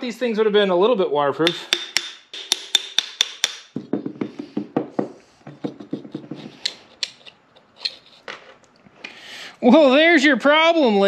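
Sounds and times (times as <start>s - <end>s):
metal parts grating and clicking: 6.6s - 8.4s.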